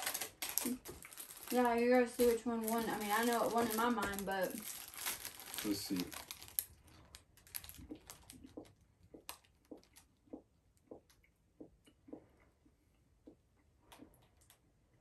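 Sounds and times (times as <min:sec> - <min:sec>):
wrapper crinkle: 0:00.0 - 0:10.1
soft chewing of a snack: 0:06.0 - 0:15.0.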